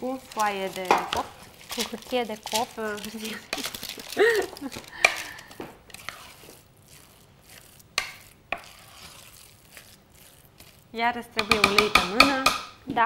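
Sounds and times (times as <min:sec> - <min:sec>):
utensil handling noise: 0:00.0 - 0:12.4
cookware knocking on countertop: 0:11.4 - 0:12.7.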